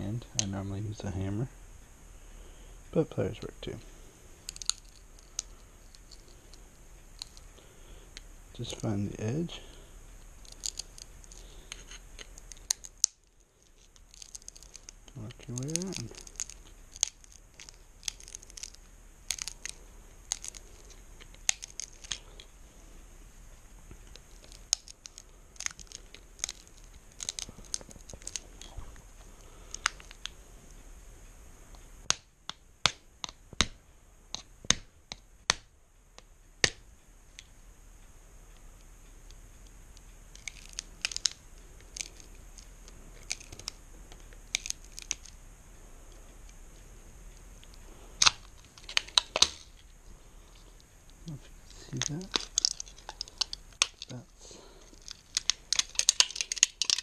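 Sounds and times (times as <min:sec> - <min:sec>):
metal snapping: 0:48.2 - 0:49.8, 0:55.0 - 0:57.0.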